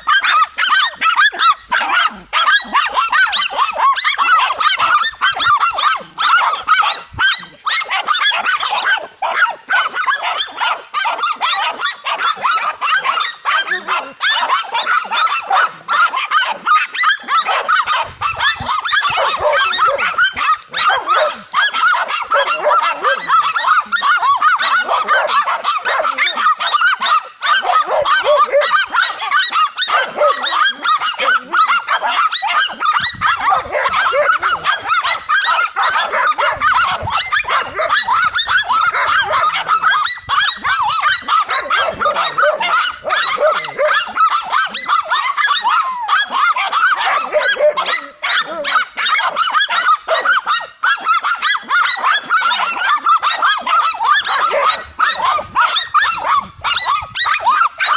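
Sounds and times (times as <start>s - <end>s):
dogs barking: 0.0s - 57.9s.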